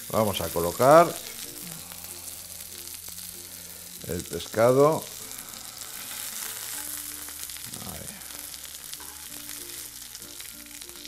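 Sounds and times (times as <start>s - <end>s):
seafood sizzling in a frying pan: 0.0s - 11.0s.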